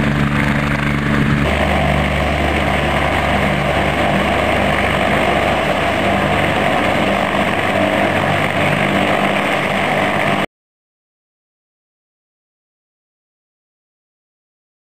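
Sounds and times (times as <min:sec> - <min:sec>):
helicopter turbine and rotor noise: 0:00.0 - 0:10.5.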